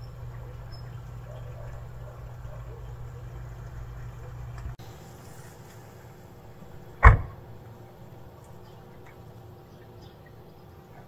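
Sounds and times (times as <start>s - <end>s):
steady low hum: 0.0s - 11.0s
loud short thump: 7.0s - 7.4s.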